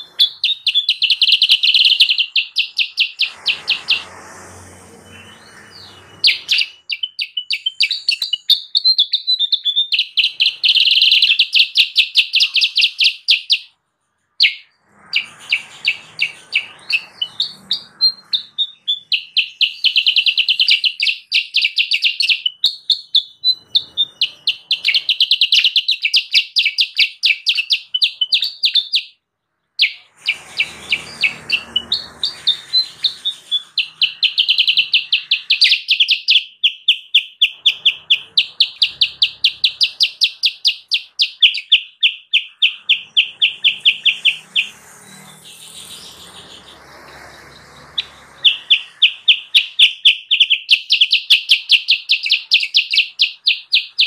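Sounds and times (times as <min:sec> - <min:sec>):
bulbul chattering calls: 0:29.8 - 0:54.0.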